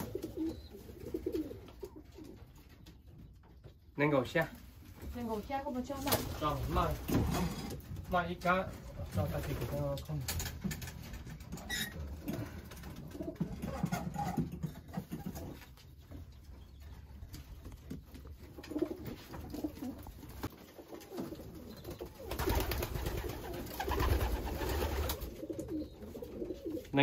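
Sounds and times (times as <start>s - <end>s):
pigeons cooing: 0.0s - 2.8s, 11.7s - 15.7s, 18.3s - 27.0s.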